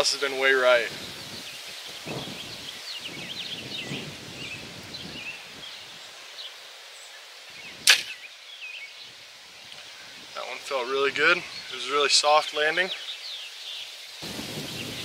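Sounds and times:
small birds chirping: 0.0s - 15.0s
bow string crack: 7.8s - 8.2s.

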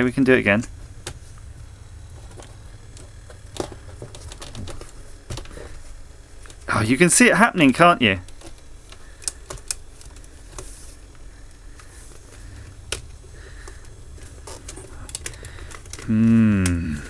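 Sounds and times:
faint low hum: 0.0s - 17.0s
man's short wordless vocal sound: 16.1s - 17.0s.

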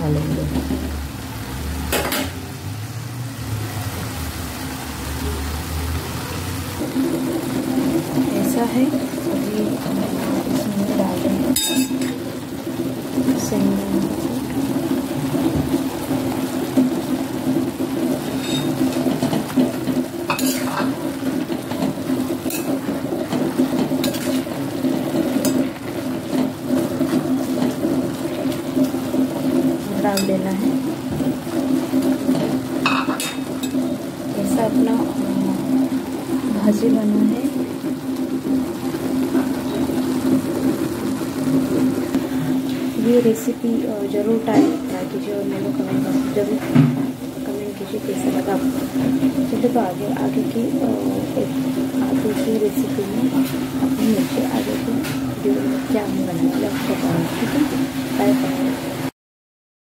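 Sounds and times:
gas burner rumble: 0.0s - 59.1s
steel ladle clattering: 11.6s - 12.2s, 18.4s - 24.5s
spoon scraping metal pot: 18.4s - 19.4s, 20.3s - 20.9s, 23.8s - 24.5s.

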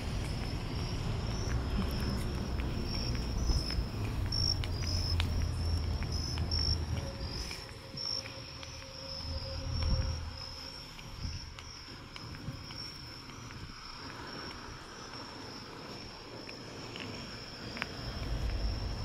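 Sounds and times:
low rumble: 0.0s - 11.8s, 17.9s - 19.0s
crickets chirping: 0.0s - 19.0s.

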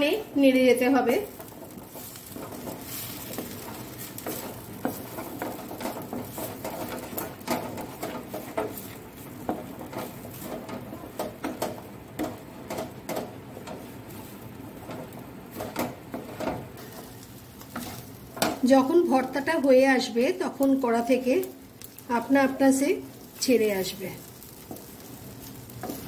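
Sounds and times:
spatula scraping paste in pan: 1.3s - 12.9s, 24.5s - 26.0s.

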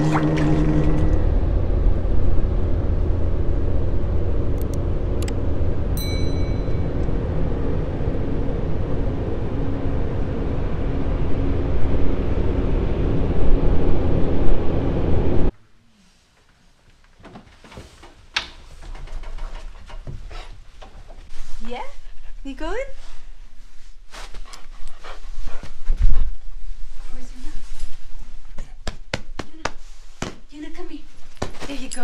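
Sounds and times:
short ringing chime: 6.0s - 7.0s.

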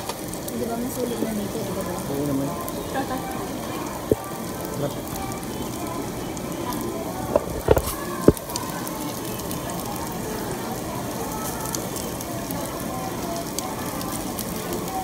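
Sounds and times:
meat sizzling on a grill: 0.0s - 15.0s.

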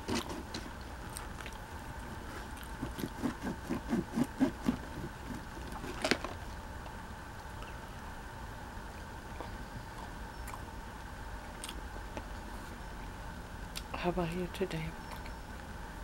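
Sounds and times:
knife sawing through bread roll: 2.8s - 5.9s.

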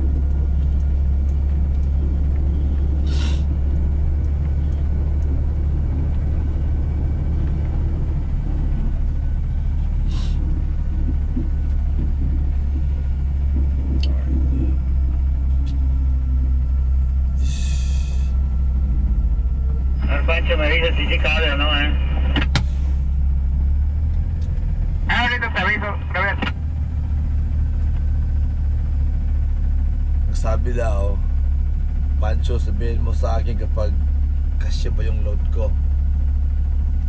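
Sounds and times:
truck engine droning: 0.0s - 37.0s
short hisses: 3.0s - 3.5s, 17.4s - 18.4s.

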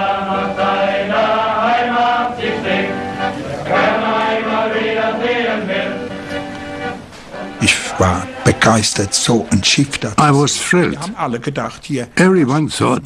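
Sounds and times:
men singing in chorus: 0.0s - 6.1s
accordion: 0.0s - 11.2s.

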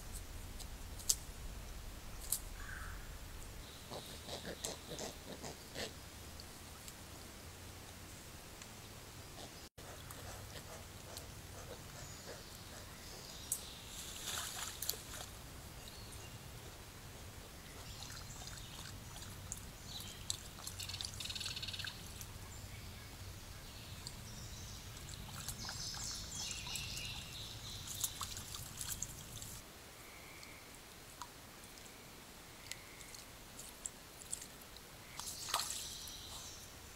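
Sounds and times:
animal splashing through creek: 13.8s - 16.0s, 17.8s - 22.4s, 24.8s - 29.6s, 32.6s - 36.5s.

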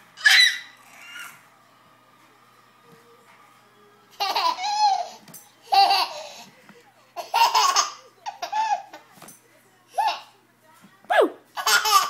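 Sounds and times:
baby laughing: 4.1s - 6.5s, 7.2s - 9.0s, 11.1s - 12.0s.

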